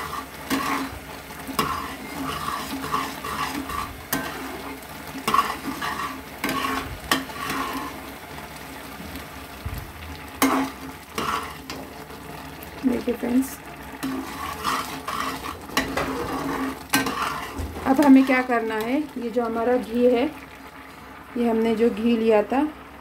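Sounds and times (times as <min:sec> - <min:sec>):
metal spatula scraping a pan: 0:00.0 - 0:08.1, 0:10.4 - 0:11.9, 0:14.0 - 0:18.9
milk mixture sizzling: 0:00.0 - 0:23.0.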